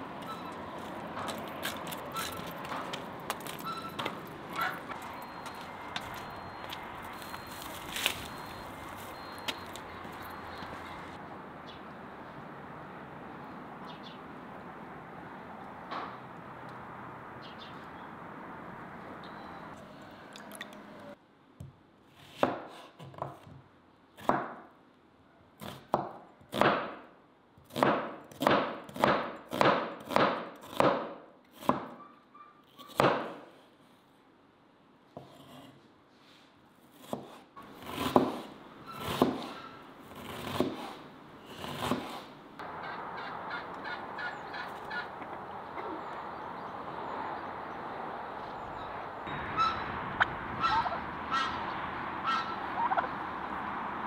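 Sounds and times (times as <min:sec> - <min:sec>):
knife chopping on cutting board: 0:37.0 - 0:38.5.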